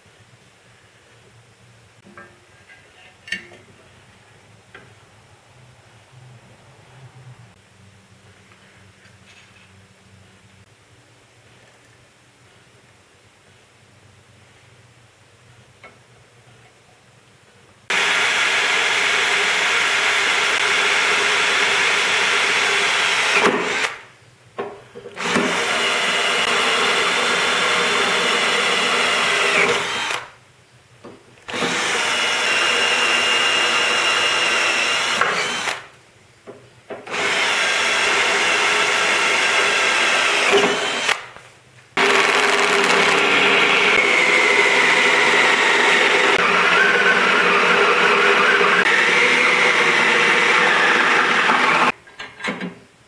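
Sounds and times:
cordless drill boring into steel: 17.9s - 24.0s, 25.2s - 30.3s, 31.5s - 35.9s, 37.1s - 41.3s, 42.0s - 51.9s.

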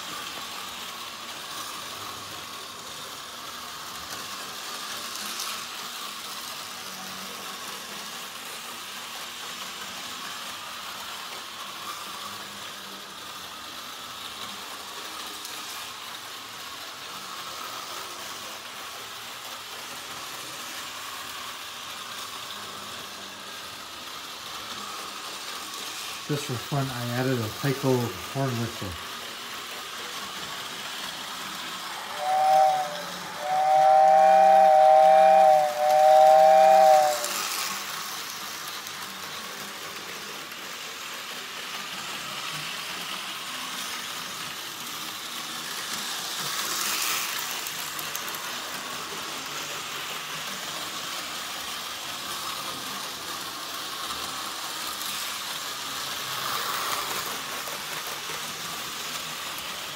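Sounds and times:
model train running hiss: 0.0s - 59.9s
two-note train horn: 32.0s - 37.3s.

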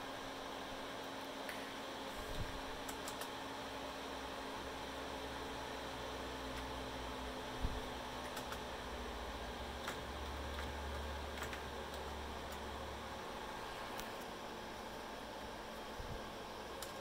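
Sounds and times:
computer fan humming: 0.0s - 17.0s
keyboard clicks: 2.8s - 3.3s, 8.2s - 8.7s.

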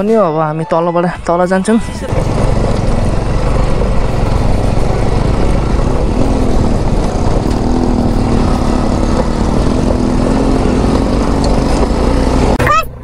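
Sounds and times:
wind noise on microphone: 2.0s - 12.0s
motorcycle engine running: 2.0s - 13.0s.

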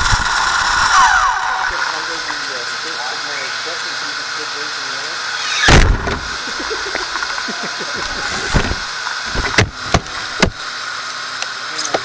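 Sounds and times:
rc car drivetrain hiss: 0.0s - 10.8s
rc car crashing knocks: 5.4s - 6.4s.

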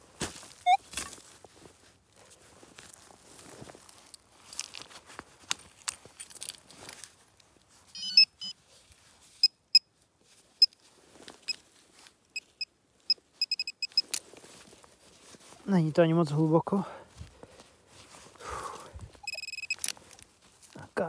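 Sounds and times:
metal detector short high beeps: 8.0s - 8.6s, 12.4s - 12.7s, 13.4s - 14.1s, 19.2s - 19.8s.

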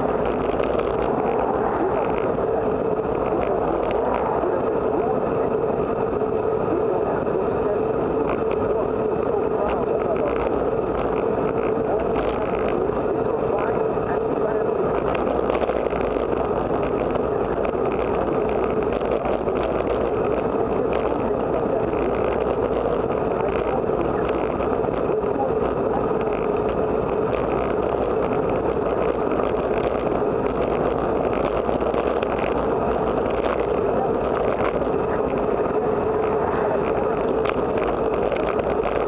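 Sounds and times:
bicycle tyres on rough asphalt: 0.0s - 4.8s, 14.9s - 39.0s
wind rushing over microphone: 0.0s - 39.0s.

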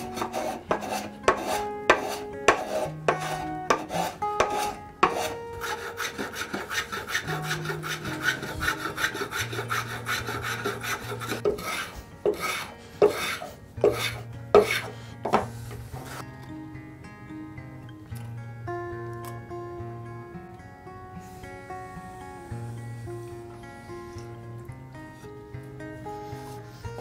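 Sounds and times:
hand plane shaving hardwood: 0.0s - 16.2s.

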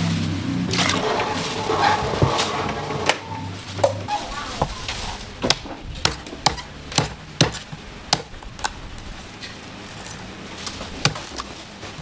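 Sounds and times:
knife chopping on cutting board: 5.5s - 8.3s.

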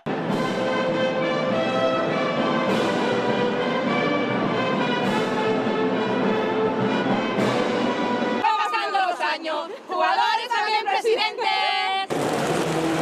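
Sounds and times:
wind band playing slow melody: 0.1s - 8.4s.

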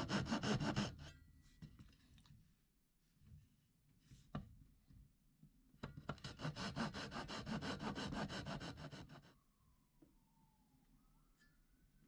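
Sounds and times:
saw cutting wood: 0.0s - 1.1s, 6.4s - 9.2s.

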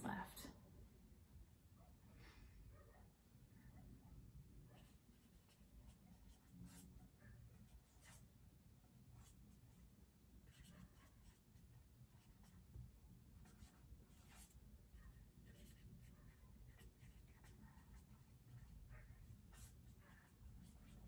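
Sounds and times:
pen scratching on paper: 4.7s - 8.3s, 9.2s - 9.8s, 10.4s - 21.0s.

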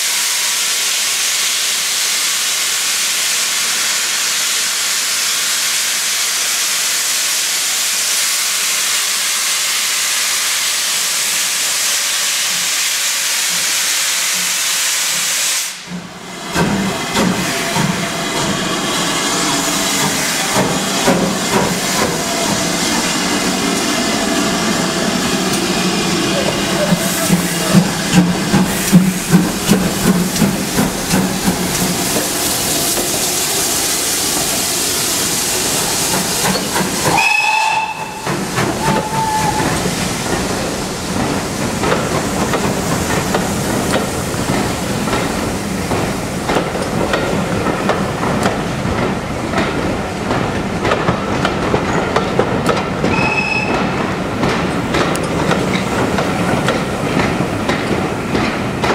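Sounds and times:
steam hiss: 0.0s - 49.4s
locomotive exhaust beats and clanks: 15.8s - 58.9s.

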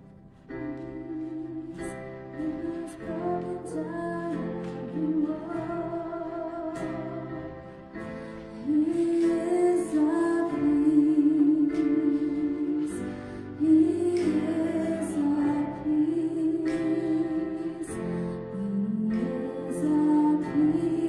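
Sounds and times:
keyboard chords: 0.0s - 21.0s
woman singing: 0.5s - 21.0s.

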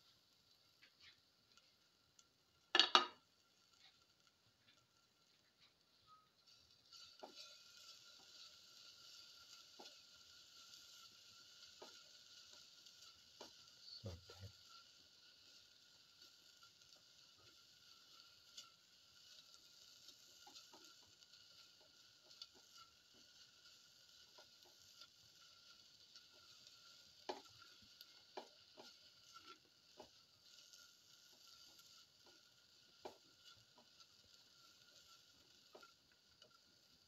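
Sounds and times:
vegetables sizzling faintly in oil: 0.0s - 37.0s
spatula tapping against pan: 2.7s - 3.2s, 27.2s - 27.5s
spatula stirring and scraping: 6.4s - 37.0s.

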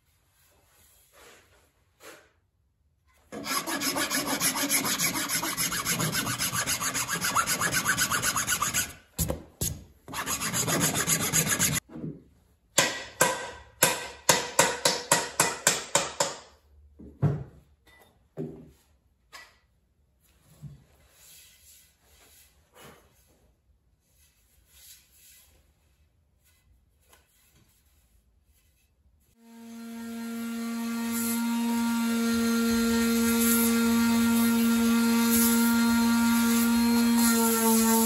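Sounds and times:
rasp scraping wood: 3.4s - 9.0s, 10.1s - 11.8s.

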